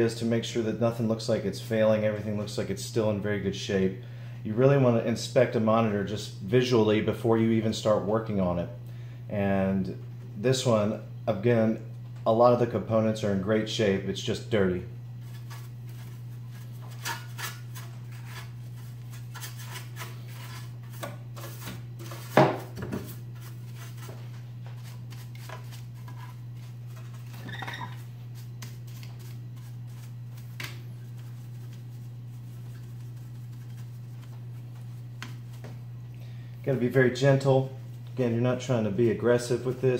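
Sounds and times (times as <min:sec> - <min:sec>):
steady low hum: 0:00.0 - 0:39.9
brush scraping over metal: 0:15.2 - 0:35.7.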